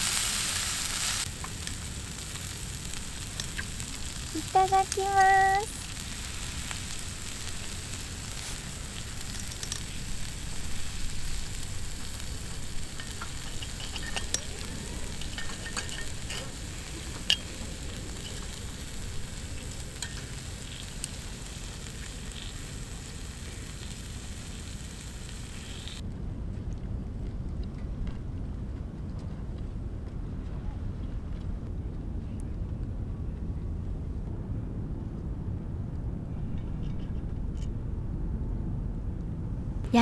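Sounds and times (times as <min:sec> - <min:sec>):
steak sizzling on a grill: 0:00.0 - 0:26.0
fire crackles: 0:00.0 - 0:38.2, 0:39.0 - 0:40.0.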